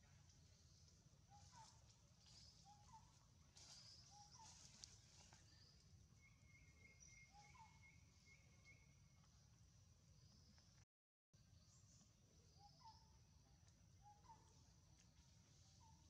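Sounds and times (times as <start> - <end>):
high insect hum: 11.4 - 16.0.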